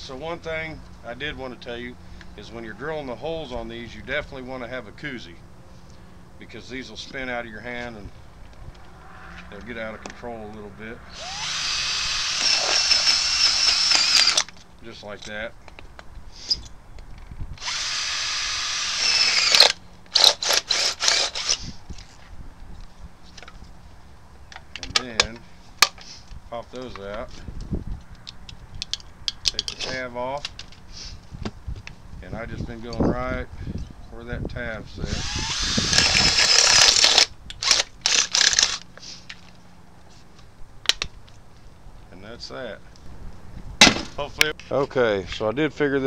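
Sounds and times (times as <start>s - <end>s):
drill boring through can: 11.1s - 14.5s, 17.6s - 21.6s, 35.1s - 38.8s
short rasping bursts: 11.1s - 14.5s, 17.6s - 21.8s, 35.1s - 39.2s.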